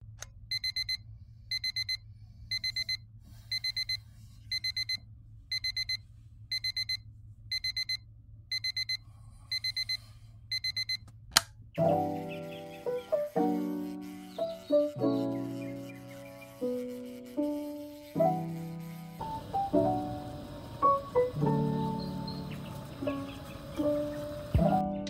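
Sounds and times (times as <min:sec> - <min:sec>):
alarm clock beeping: 0:00.5 - 0:04.0, 0:04.6 - 0:09.0, 0:09.6 - 0:11.0.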